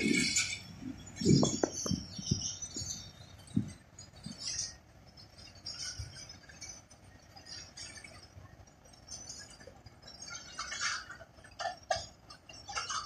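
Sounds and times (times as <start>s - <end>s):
small birds chirping: 0.1s - 8.3s.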